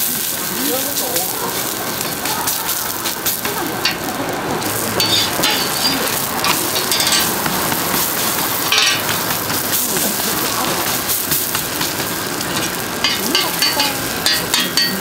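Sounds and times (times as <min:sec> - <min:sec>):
pancakes sizzling in oil: 0:00.0 - 0:15.0
sharp crackles: 0:00.0 - 0:15.0.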